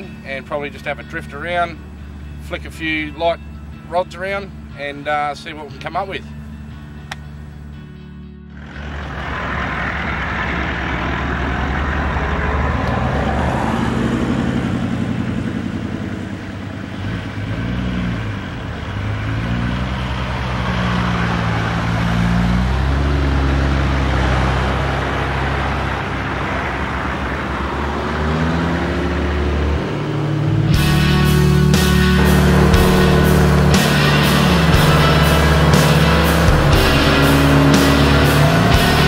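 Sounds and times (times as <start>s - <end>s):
vehicle engines revving under load: 8.5s - 39.0s.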